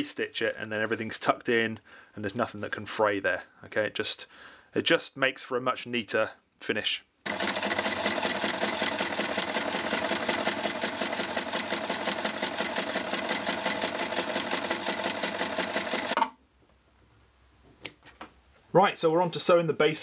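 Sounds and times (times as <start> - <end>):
electric sewing machine stitching: 7.3 - 16.3.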